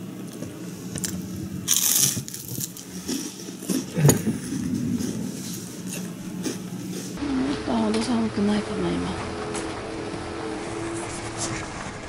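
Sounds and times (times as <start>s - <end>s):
fried bread crunching: 0.3s - 7.2s.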